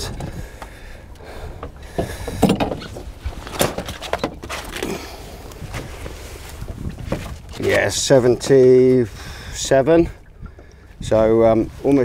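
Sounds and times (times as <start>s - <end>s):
wind rumble on microphone: 0.0s - 4.0s, 5.3s - 12.0s
knocks and thuds on boat: 1.4s - 4.8s, 5.6s - 8.7s.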